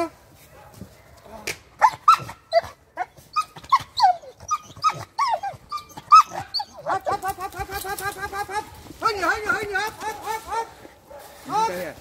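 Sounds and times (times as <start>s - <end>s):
young dog whining and yelping: 1.8s - 8.8s.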